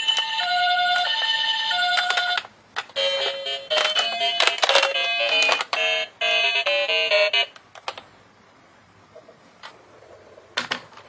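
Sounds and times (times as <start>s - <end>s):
toy beeping tune: 3.0s - 7.5s.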